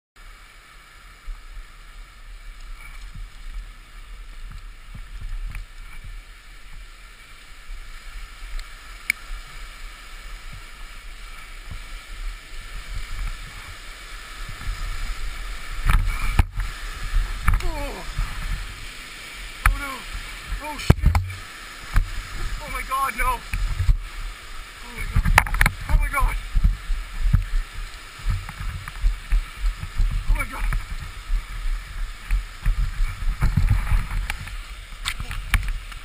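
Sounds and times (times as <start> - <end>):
wind rushing over microphone: 8.3 - 36.0.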